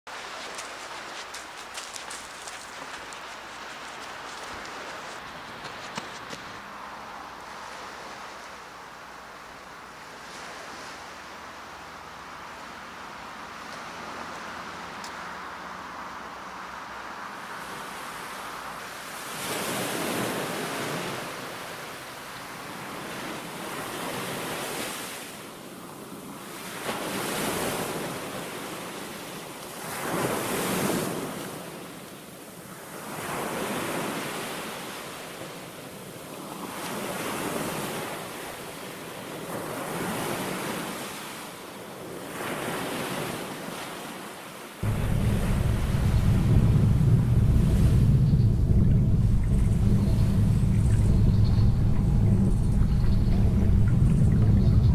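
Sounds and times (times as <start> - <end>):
sea waves washing onto beach: 0.1 - 15.5, 17.0 - 52.0
wind on microphone: 44.8 - 54.9.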